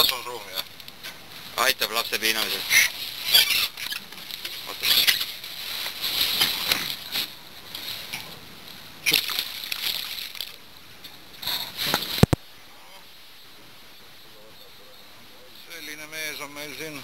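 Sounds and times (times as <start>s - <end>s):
rough rustling and handling: 0.0s - 12.4s
fish splashing into water: 9.0s - 10.6s.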